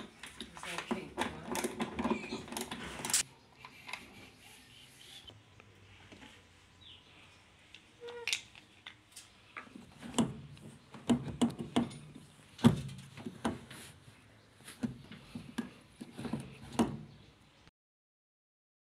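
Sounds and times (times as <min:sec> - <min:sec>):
plastic and metal parts clicking: 0:00.0 - 0:04.1.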